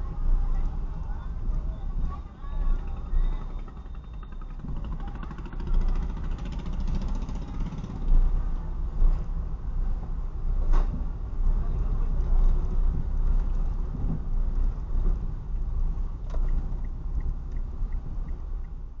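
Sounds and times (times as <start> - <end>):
car engine and road rumble: 0.0 - 19.0
light regular ticking: 16.3 - 18.8.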